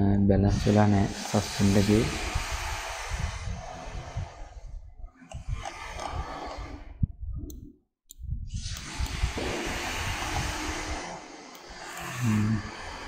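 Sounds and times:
soft low thumps: 0:06.9 - 0:10.5.

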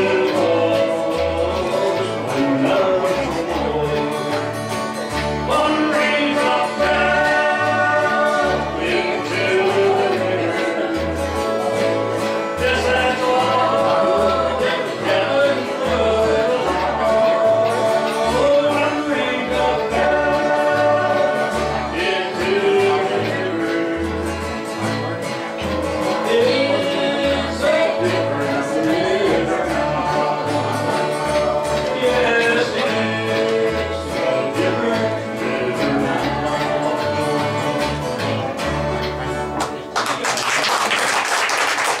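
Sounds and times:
acoustic string band playing: 0:00.0 - 0:40.8
voices singing country tune: 0:00.0 - 0:42.0
audience applause: 0:39.6 - 0:42.0.

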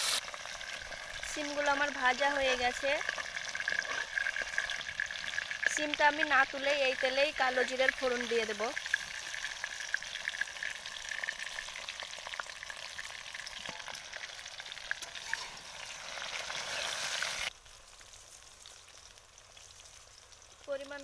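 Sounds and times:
faint hiss: 0:00.0 - 0:00.4
seeds sizzling in hot oil: 0:00.0 - 0:21.0.

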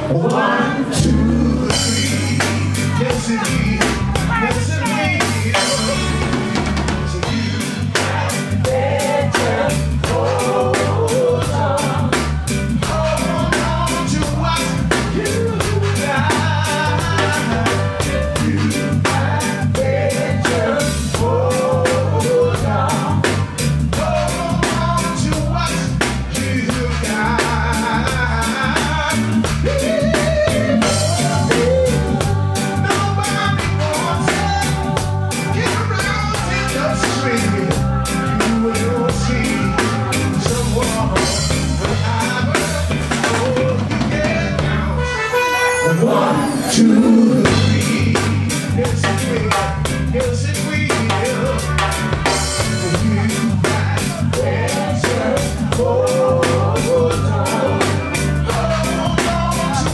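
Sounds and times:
drum kit: 0:00.0 - 0:59.9
live reggae band playing: 0:00.0 - 0:59.9
person singing into a microphone: 0:00.0 - 0:59.9
repeating bass line: 0:00.0 - 0:59.9.

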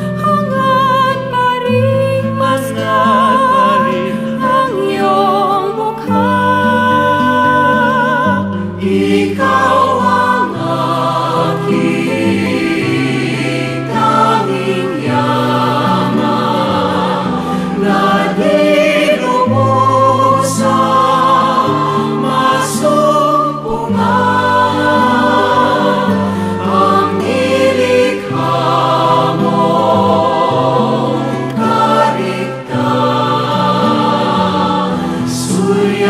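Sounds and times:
choir singing: 0:00.2 - 0:36.0
instrumental backing music: 0:07.3 - 0:36.0.

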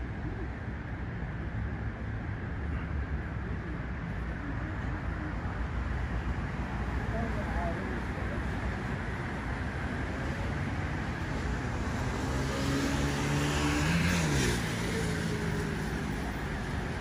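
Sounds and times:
hum of traffic: 0:00.0 - 0:17.0
vehicle passing close by: 0:11.2 - 0:17.0.

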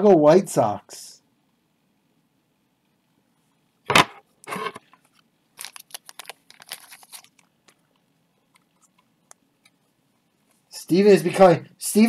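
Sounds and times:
packaging crinkling and tearing: 0:05.6 - 0:07.8.

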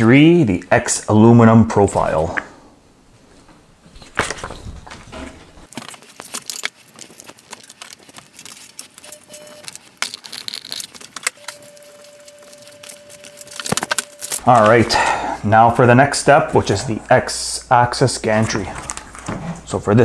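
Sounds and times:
metal parts clinking: 0:05.7 - 0:14.4.

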